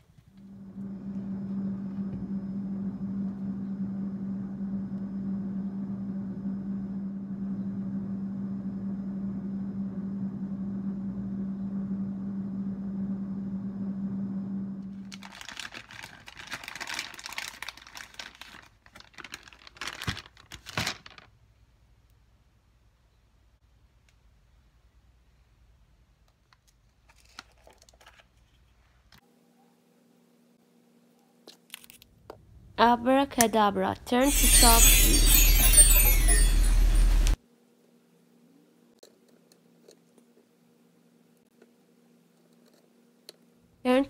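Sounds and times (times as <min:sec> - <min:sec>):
low machine hum: 0:00.0 - 0:18.4, 0:32.5 - 0:37.4
crinkling and rustling: 0:15.0 - 0:21.4, 0:26.4 - 0:29.2.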